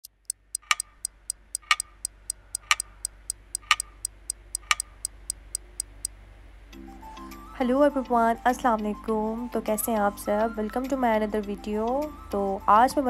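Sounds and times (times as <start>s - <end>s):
clock ticking: 0.0s - 6.1s.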